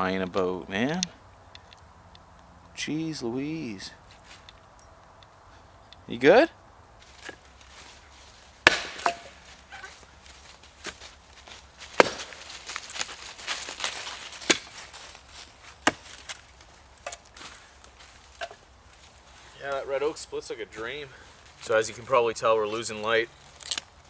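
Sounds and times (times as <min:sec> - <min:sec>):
wood splitting apart: 0:08.6 - 0:09.4, 0:11.9 - 0:14.9, 0:23.5 - 0:24.0
axe chopping log: 0:08.6 - 0:09.9, 0:11.9 - 0:12.4, 0:14.4 - 0:14.8, 0:15.8 - 0:16.3.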